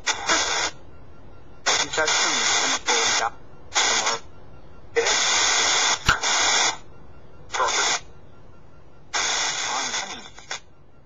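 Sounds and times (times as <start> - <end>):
choppy radio static bursts: 0.0 - 0.8, 1.6 - 4.3, 4.9 - 6.9, 7.5 - 8.1, 9.1 - 10.7.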